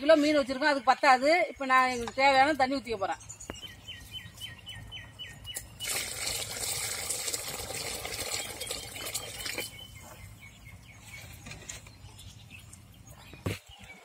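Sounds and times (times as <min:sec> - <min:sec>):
water pouring into metal pot: 0:05.8 - 0:09.7.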